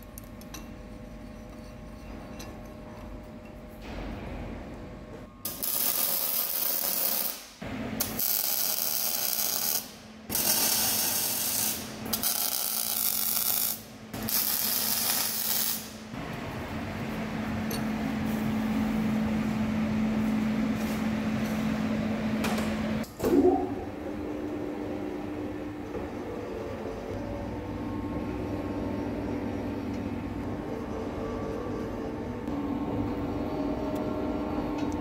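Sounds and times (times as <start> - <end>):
steady low hum: 0.0 - 35.0
arc welder crackling: 5.4 - 16.2.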